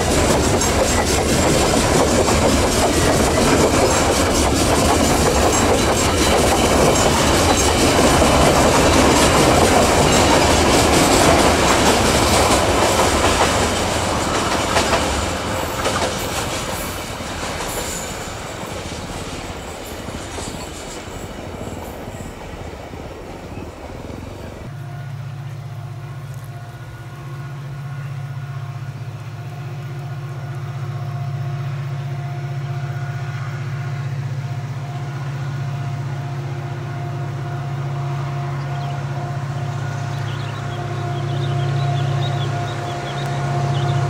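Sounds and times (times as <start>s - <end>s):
train wheels clicking over rail joints: 0.0s - 24.7s.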